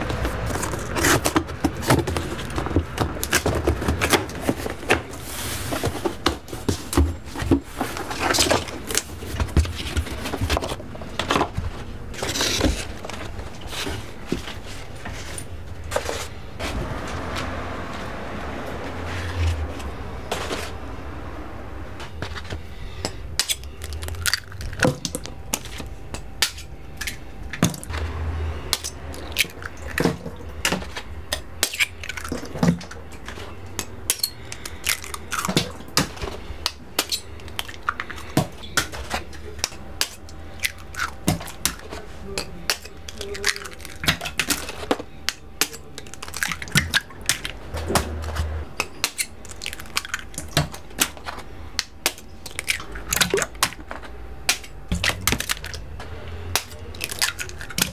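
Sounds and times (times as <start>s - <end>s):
low steady hum: 0.0s - 57.9s.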